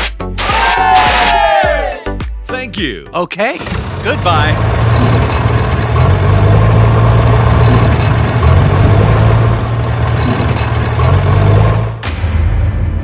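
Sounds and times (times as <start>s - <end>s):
tractor engine running: 3.6s - 12.0s.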